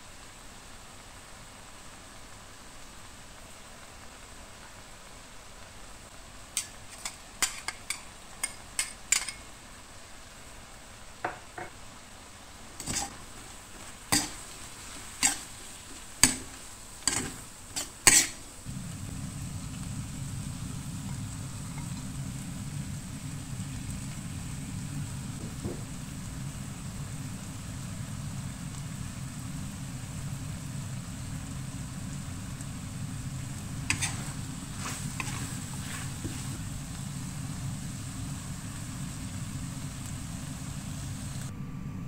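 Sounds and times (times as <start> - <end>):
utensil scraping metal wok: 6.6 - 9.5, 12.8 - 18.5, 33.2 - 37.3
steady low rumble: 18.6 - 42.0.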